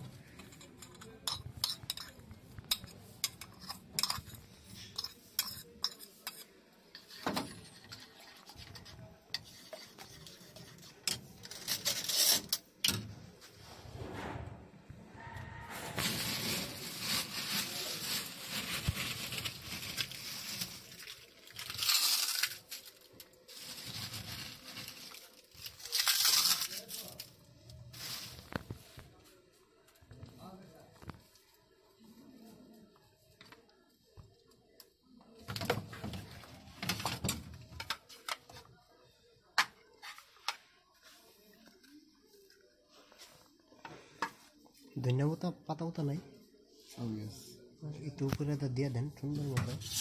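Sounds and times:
plastic bags rustling: 0:15.6 - 0:29.3.

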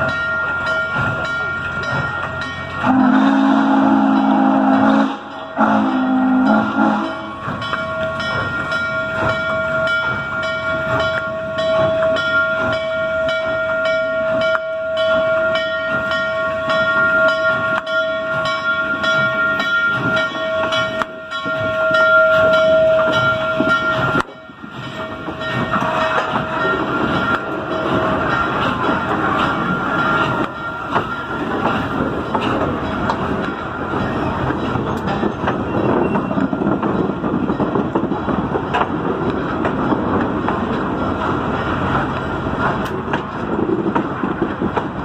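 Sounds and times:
steam locomotive whistle: 0:02.8 - 0:07.6.

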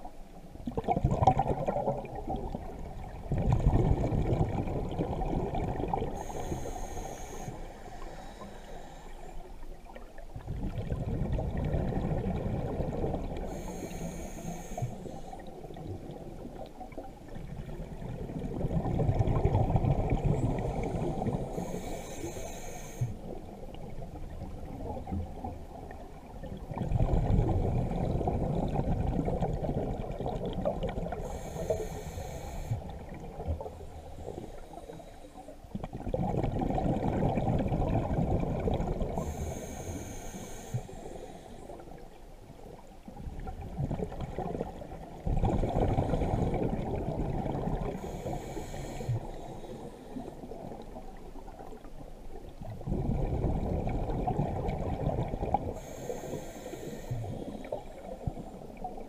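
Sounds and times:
gurgle of exhaled bubbles: 0:00.6 - 0:06.7, 0:09.8 - 0:13.8, 0:14.8 - 0:21.8, 0:23.2 - 0:31.5, 0:32.6 - 0:34.8, 0:35.7 - 0:39.6, 0:42.7 - 0:59.0
hissing regulator inhale: 0:06.1 - 0:09.5, 0:13.4 - 0:15.6, 0:20.6 - 0:23.4, 0:31.1 - 0:32.9, 0:33.9 - 0:35.6, 0:39.1 - 0:42.0, 0:47.8 - 0:50.6, 0:55.7 - 0:58.3.

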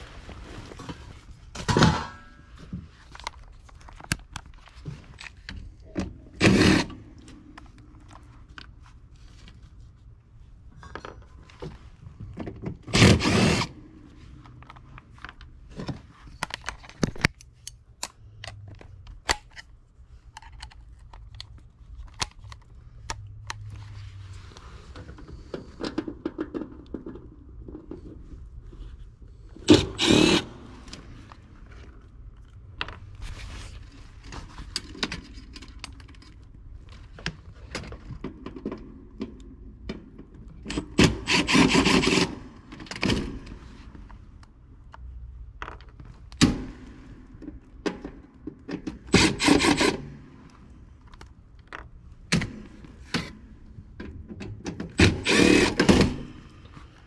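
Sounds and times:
cordless drill bursts: 0:12.9 - 0:13.7, 0:29.7 - 0:30.6, 0:41.0 - 0:42.4, 0:49.1 - 0:50.0, 0:55.0 - 0:56.2
clicks of screws and tools: 0:16.3 - 0:23.7, 0:34.6 - 0:43.6.

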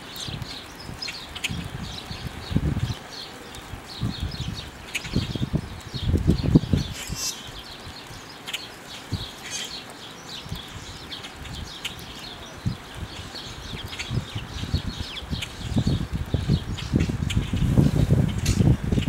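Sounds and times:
songbirds chirping: 0:00.0 - 0:19.0
squeaky bird calls: 0:06.9 - 0:07.6, 0:09.4 - 0:09.8.

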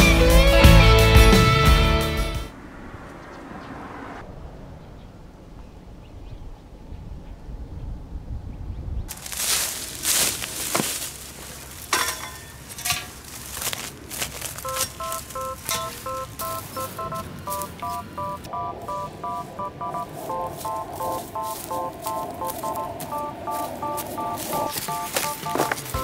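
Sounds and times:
footsteps in dry grass: 0:09.1 - 0:26.0
electronic beeping tune: 0:14.6 - 0:26.0.

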